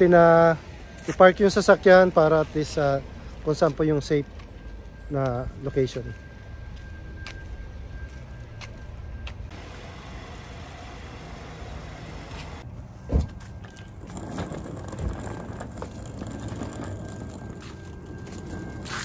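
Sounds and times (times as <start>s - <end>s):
low rumble of parking lot: 0.0s - 19.0s.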